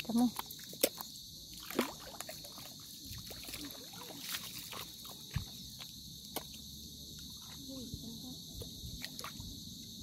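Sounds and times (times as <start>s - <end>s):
footsteps squelching in mud: 0.0s - 7.6s
insects chirring: 0.0s - 10.0s.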